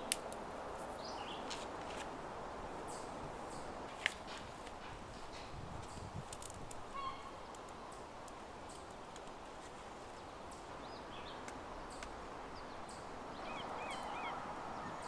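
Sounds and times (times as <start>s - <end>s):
campfire crackling: 0.0s - 3.2s, 3.8s - 13.2s
small birds chirping: 5.3s - 15.0s.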